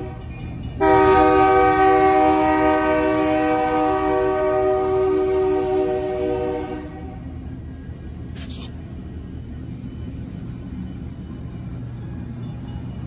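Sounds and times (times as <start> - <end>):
locomotive air horn: 0.0 - 7.3
diesel locomotive engines rumbling: 0.0 - 13.0
brief high hiss: 8.3 - 8.8.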